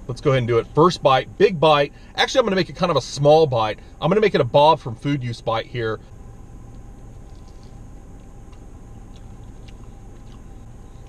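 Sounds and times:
low hum inside a car: 0.0 - 11.0
faint clicks and crunches: 6.7 - 11.0
chewing crispy food: 7.0 - 11.0.

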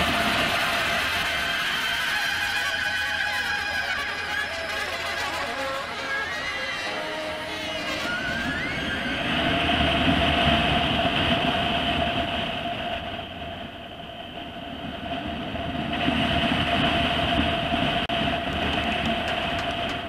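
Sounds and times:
vehicle engine tone: 0.0 - 14.8
road rumble and rushing: 0.0 - 20.0.

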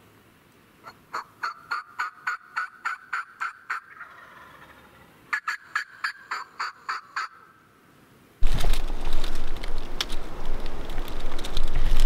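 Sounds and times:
turkey yelping: 0.8 - 7.5.

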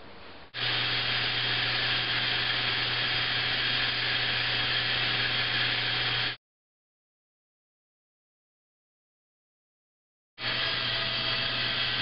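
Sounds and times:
band saw cutting wood: 0.6 - 6.4, 10.4 - 12.0.

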